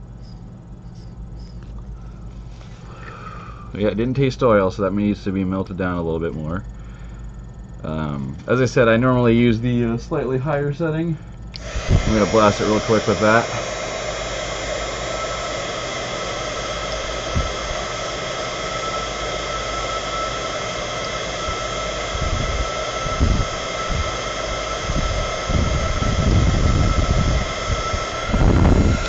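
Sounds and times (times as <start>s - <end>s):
fan motor whine: 0.0s - 29.0s
heat gun blowing air: 11.6s - 29.0s.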